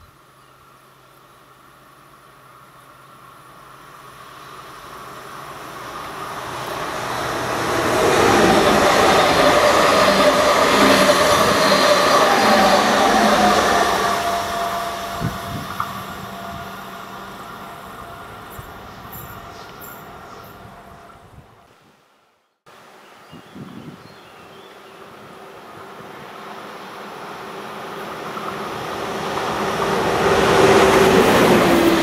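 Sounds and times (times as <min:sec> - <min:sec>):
train wheels rumbling on rail: 0:03.3 - 0:21.5, 0:25.7 - 0:32.0.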